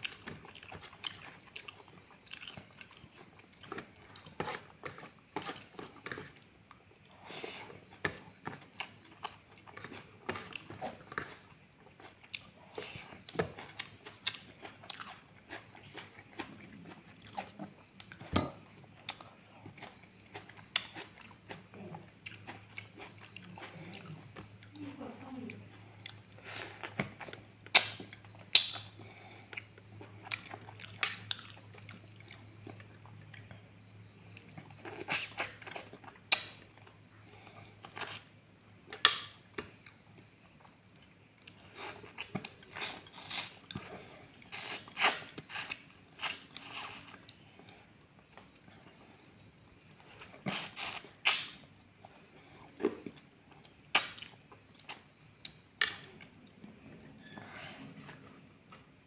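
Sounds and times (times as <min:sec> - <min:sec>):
wet chewing and lip smacks: 0:00.0 - 0:06.8.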